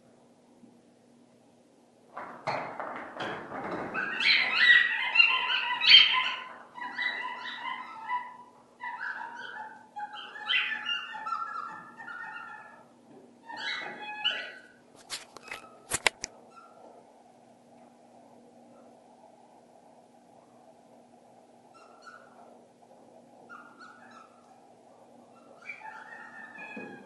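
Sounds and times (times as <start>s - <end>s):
dog whining and yelping: 4.0s - 12.9s, 13.5s - 14.8s.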